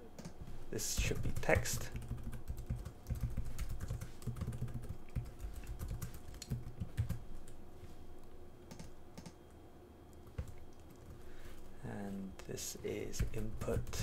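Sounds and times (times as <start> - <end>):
typing on computer keyboard: 1.0 - 7.2, 8.7 - 9.4.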